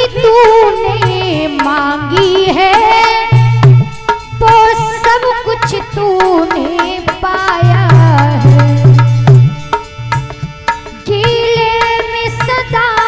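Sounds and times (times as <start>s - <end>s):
tabla drumming: 0.0s - 13.0s
heavy bass drum strokes: 1.0s - 11.8s.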